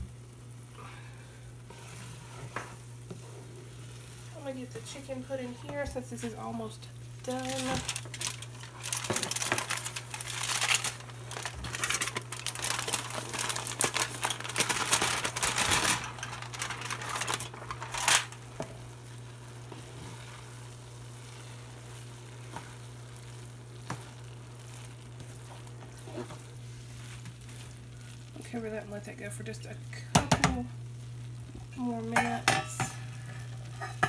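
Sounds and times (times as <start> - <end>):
aluminium foil crinkling: 4.4 - 29.8.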